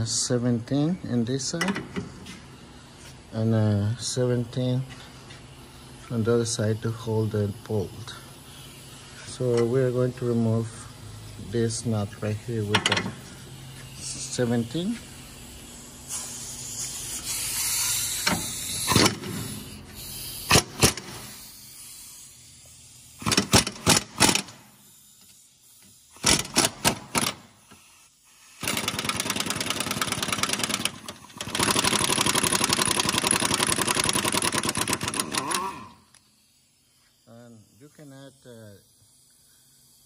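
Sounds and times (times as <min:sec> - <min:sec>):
impact wrench bursts: 0:11.5 - 0:38.3.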